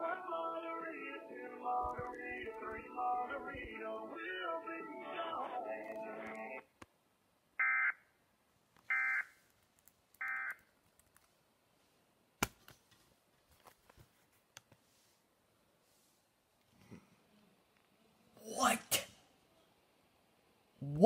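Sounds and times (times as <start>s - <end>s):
music: 0.0s - 6.6s.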